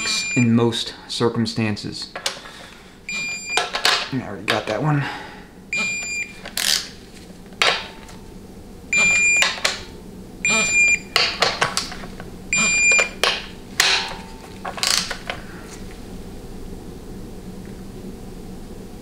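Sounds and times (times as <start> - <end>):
torque wrench beeping: 0.0 - 0.5, 3.1 - 3.9, 5.7 - 6.9, 8.9 - 9.7, 10.4 - 11.4, 12.5 - 15.1.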